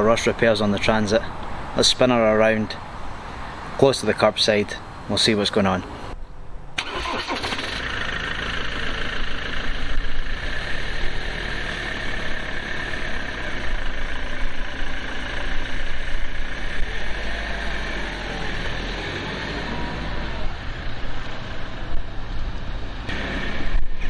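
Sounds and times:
van engine starting and running: 6.8 - 24.0.

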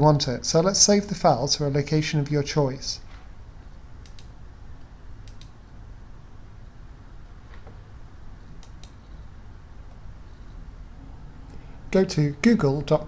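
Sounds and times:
low steady hum: 0.0 - 13.0
computer mouse clicking: 4.0 - 4.4, 5.2 - 5.6, 8.5 - 9.0.

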